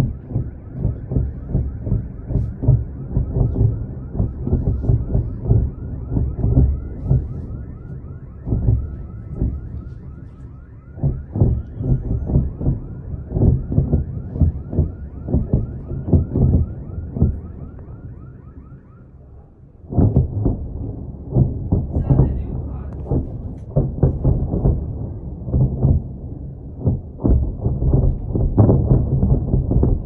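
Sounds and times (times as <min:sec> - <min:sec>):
distant blasts and booms: 0:00.0 - 0:30.0.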